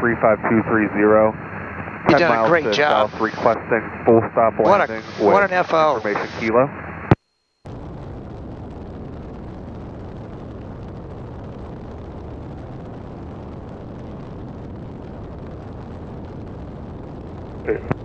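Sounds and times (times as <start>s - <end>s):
airplane engine drone: 0.0s - 7.1s, 17.6s - 18.0s.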